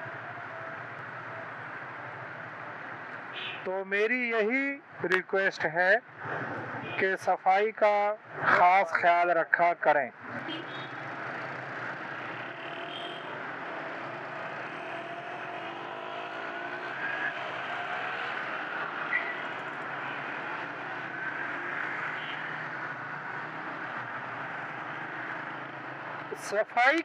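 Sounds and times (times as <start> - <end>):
road and wind noise: 0.0 - 27.0
motorcycle engines accelerating: 10.2 - 27.0.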